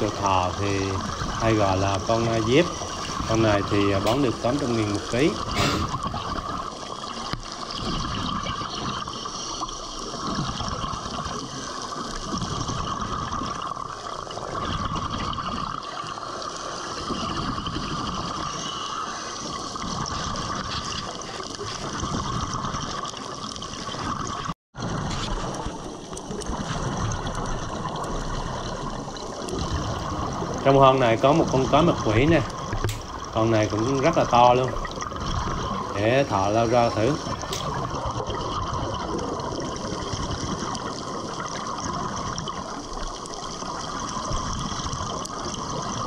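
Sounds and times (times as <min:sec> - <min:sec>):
underwater hiss and gurgling: 0:00.0 - 0:46.0.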